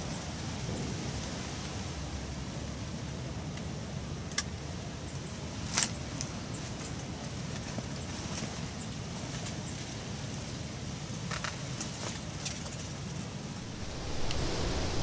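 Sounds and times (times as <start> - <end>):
small birds chirping faintly: 13.6 - 15.0
steady low rumble: 13.6 - 15.0.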